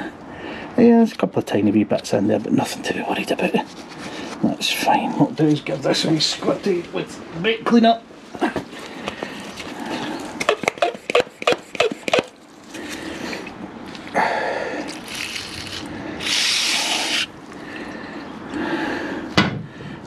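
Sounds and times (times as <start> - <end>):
gloved hands clicking and rubbing: 10.3 - 12.4
aerosol spray hissing: 16.2 - 17.3.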